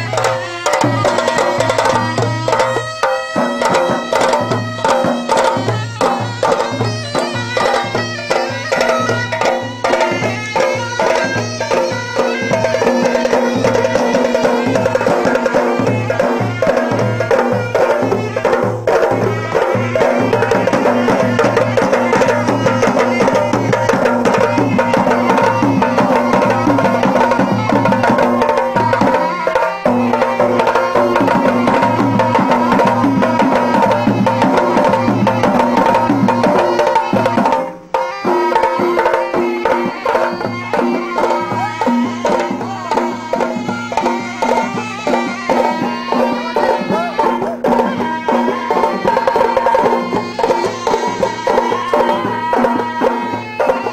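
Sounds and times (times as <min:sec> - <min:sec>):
folk melody: 0:00.0 - 0:53.9
steady drum beat: 0:00.0 - 0:53.9.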